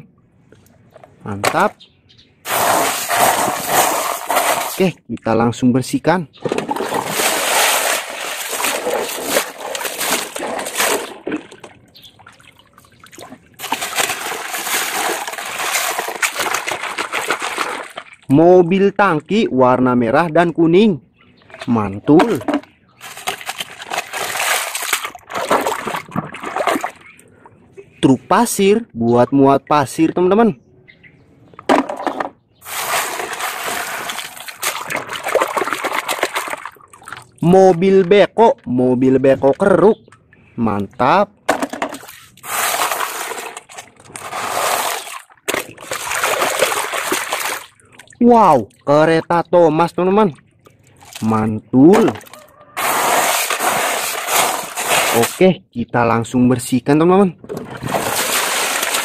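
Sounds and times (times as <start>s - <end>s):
water splashing and sloshing: 2.4s - 4.8s, 6.4s - 18.8s, 21.2s - 28.0s, 31.3s - 49.4s, 50.0s - 55.4s, 57.4s - 59.0s.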